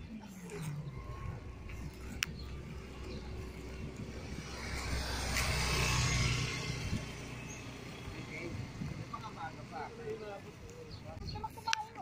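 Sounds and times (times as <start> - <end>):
motor vehicle passing: 0.0 - 11.7.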